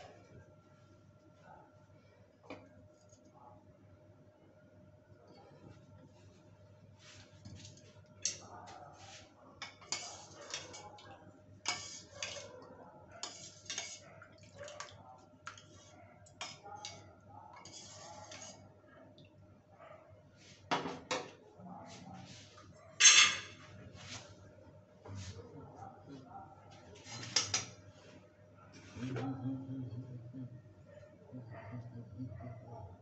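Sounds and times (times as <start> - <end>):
dishes and utensils clinking: 23.0 - 23.6
faint steady hum: 27.9 - 33.0.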